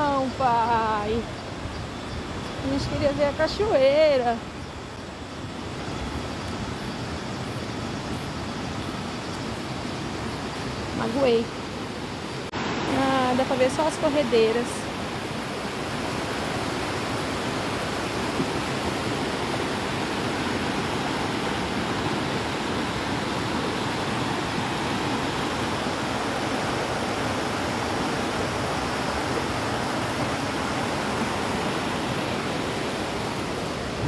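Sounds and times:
river rapids over rocks: 0:12.6 - 0:34.0.

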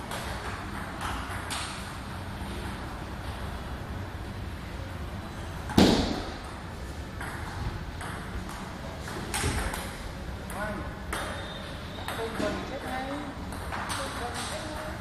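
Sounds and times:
low room noise: 0:00.0 - 0:15.0
sharp ball strike: 0:05.7 - 0:06.4.

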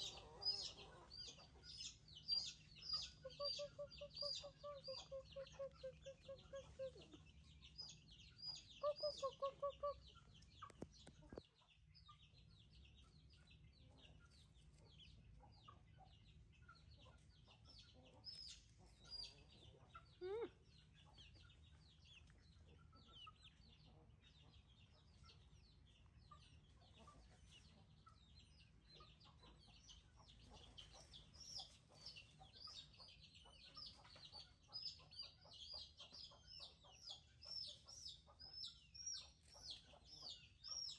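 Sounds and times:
hen clucking: 0:00.0 - 0:07.4, 0:08.4 - 0:10.8.

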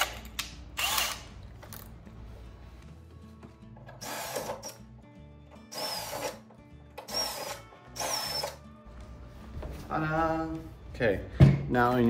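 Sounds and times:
cordless drill boring into metal: 0:00.8 - 0:01.3, 0:04.0 - 0:04.8, 0:05.7 - 0:06.4, 0:07.0 - 0:08.6.

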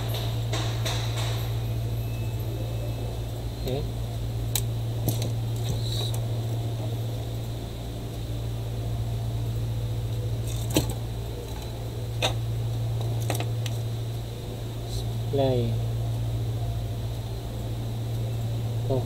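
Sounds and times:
tools clicking and tapping: 0:00.0 - 0:01.6
low electrical hum: 0:00.0 - 0:19.0.

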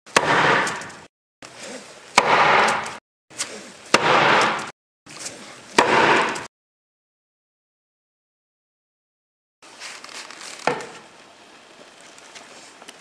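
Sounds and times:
hammer striking hard shell: 0:00.1 - 0:01.1, 0:02.2 - 0:03.0, 0:04.0 - 0:04.7, 0:05.8 - 0:06.5.

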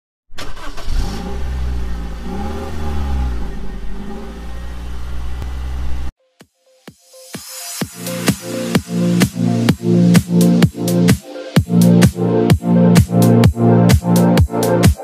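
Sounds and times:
engine revving: 0:00.3 - 0:06.1.

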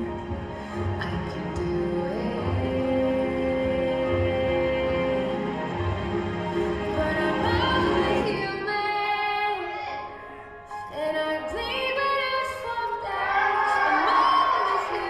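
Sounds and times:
song music: 0:00.0 - 0:15.0.

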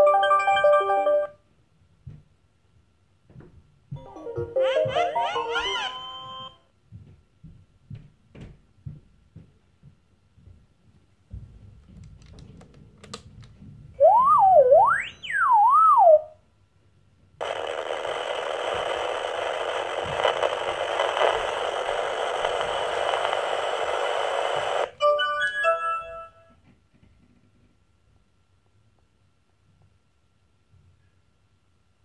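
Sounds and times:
sliding electronic whistle: 0:04.6 - 0:06.6, 0:14.0 - 0:16.4
steady electronic hiss: 0:17.4 - 0:25.0.

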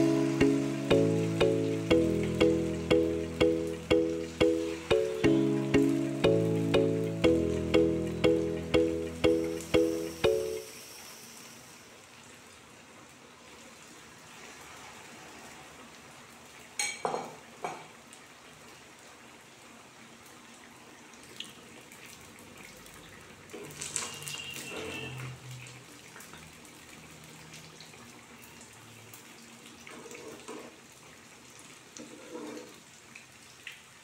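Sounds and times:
food deep-frying in hot oil: 0:07.8 - 0:34.0.

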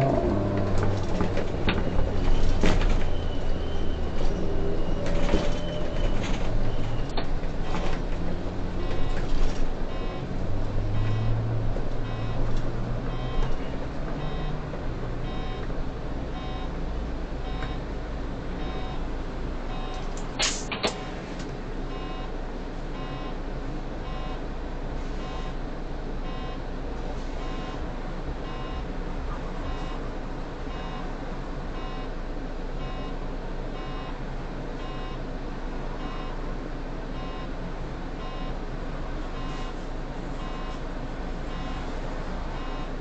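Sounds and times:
bus idling hum: 0:00.0 - 0:43.0.

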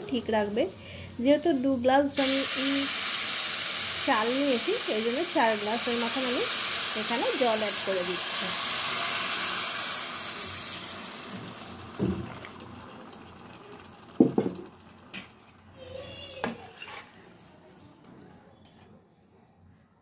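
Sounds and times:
hot water pouring into pan: 0:00.3 - 0:16.5
metal spoon scraping pan: 0:16.6 - 0:17.2.

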